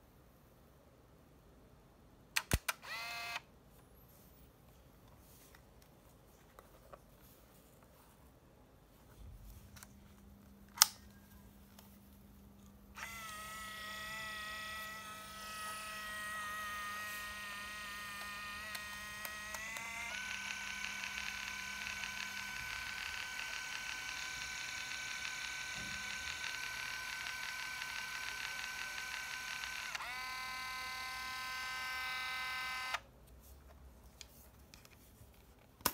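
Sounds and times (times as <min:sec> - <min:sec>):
camera click: 0:02.4 - 0:03.4
film transport motor whirring: 0:02.6 - 0:03.4, 0:13.0 - 0:33.0.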